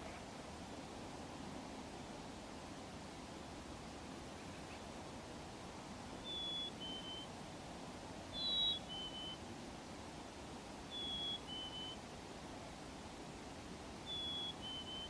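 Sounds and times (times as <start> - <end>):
steady low hiss: 0.0 - 15.0
chickadee whistled two-note song: 6.2 - 7.3, 8.4 - 9.4, 10.9 - 12.0, 14.1 - 15.0.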